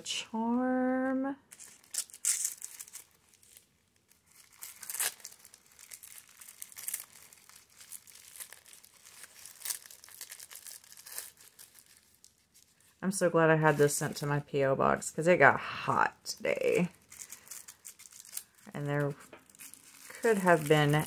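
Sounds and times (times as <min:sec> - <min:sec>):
tissue paper crinkling: 0:01.5 - 0:13.0, 0:16.4 - 0:21.0.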